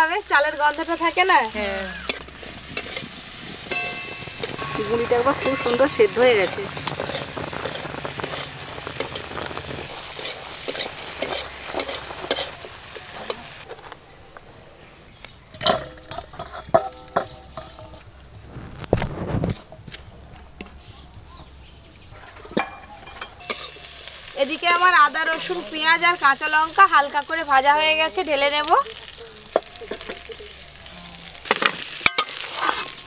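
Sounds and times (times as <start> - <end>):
water bubbling: 1.8 - 13.3
spatula stirring in metal pan: 2.1 - 13.8, 22.3 - 26.4, 31.4 - 33.0.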